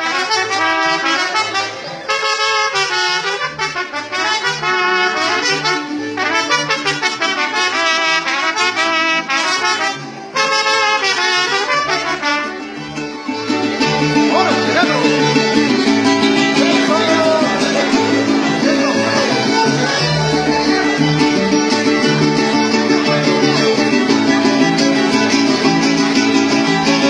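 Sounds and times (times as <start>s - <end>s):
brass band with trumpets: 0.0s - 27.0s.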